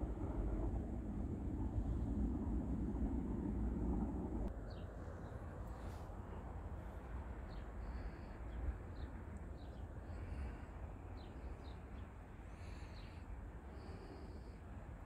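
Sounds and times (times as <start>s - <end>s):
low outdoor rumble: 0.0s - 15.0s
small birds chirping: 4.5s - 5.4s, 7.4s - 14.5s.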